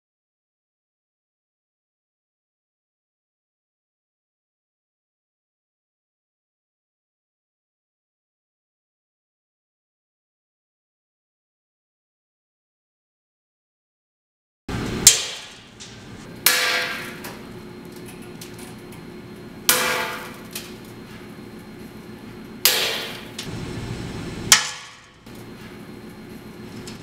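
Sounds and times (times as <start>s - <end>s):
steady low hum: 14.7s - 27.0s.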